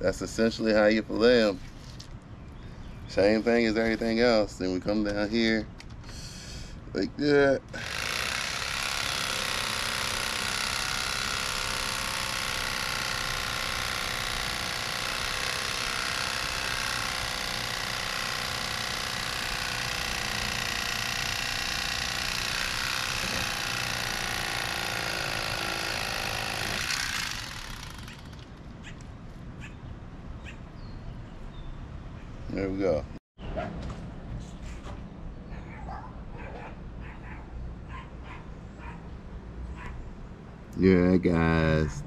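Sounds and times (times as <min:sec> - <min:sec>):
electric knife cutting fish: 0:07.8 - 0:28.4.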